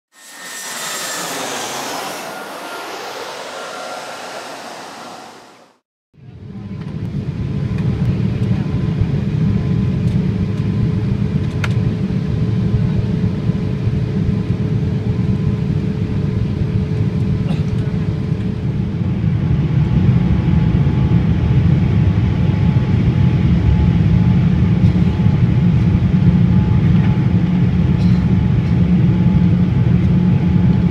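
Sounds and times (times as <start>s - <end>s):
airplane cabin noise: 0.1s - 5.8s
whoosh with falling tones: 0.1s - 5.8s.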